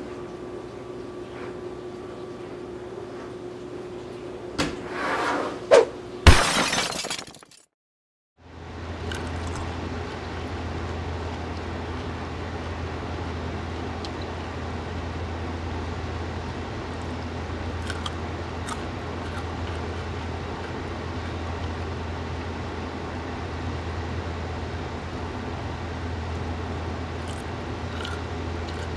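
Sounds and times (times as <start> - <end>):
outdoor background rumble: 8.4 - 28.9
crisp clicks of pickles bitten: 9.0 - 10.2, 13.9 - 14.4, 17.7 - 21.8, 27.2 - 28.9.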